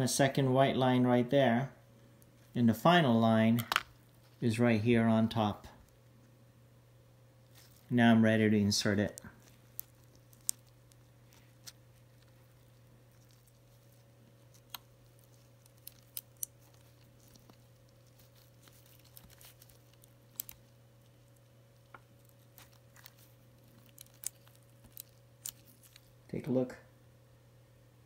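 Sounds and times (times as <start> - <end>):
low steady hum: 0.0 - 28.0
ribbon cable clicks and crinkles: 7.4 - 8.0, 8.8 - 26.2.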